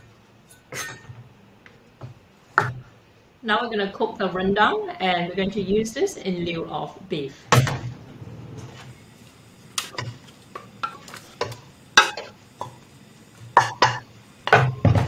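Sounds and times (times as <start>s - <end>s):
utensils knocking in a wok: 9.9s - 12.8s, 13.6s - 15.0s.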